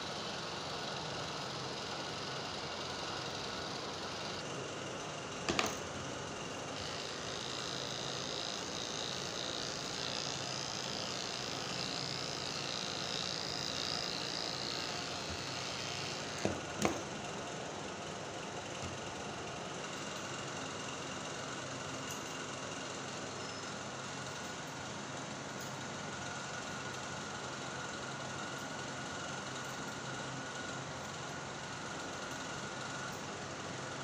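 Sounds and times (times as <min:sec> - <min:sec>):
electric hair clippers buzzing: 0:00.0 - 0:04.6, 0:05.4 - 0:17.2.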